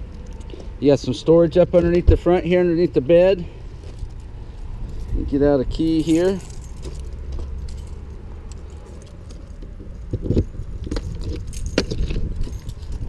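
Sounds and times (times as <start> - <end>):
keys jangling: 3.8 - 13.0.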